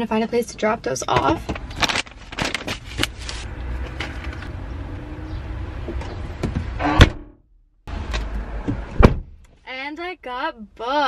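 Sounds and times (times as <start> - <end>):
car trunk slamming shut: 9.0 - 9.4.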